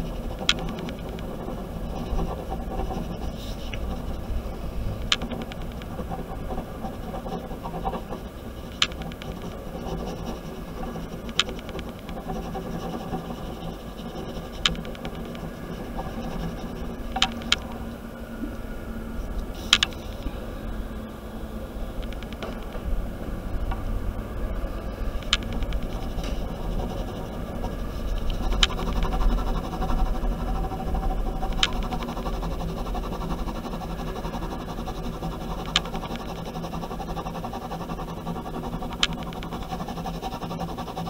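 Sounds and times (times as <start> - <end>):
sharp clicks: 0.0 - 4.0, 5.0 - 6.0, 7.3 - 15.4, 16.1 - 17.8, 19.7 - 20.3, 22.0 - 22.7, 25.2 - 27.3, 28.1 - 29.2, 31.5 - 32.1, 35.4 - 36.3, 38.9 - 39.5
pen scratching on paper: 0.0 - 17.8, 19.5 - 20.2, 25.1 - 41.0
low hum: 0.0 - 41.0.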